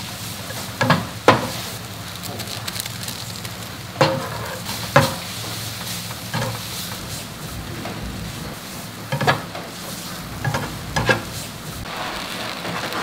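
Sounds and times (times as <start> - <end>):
noodles sizzling in a frying pan: 0.0 - 7.0, 10.0 - 13.0.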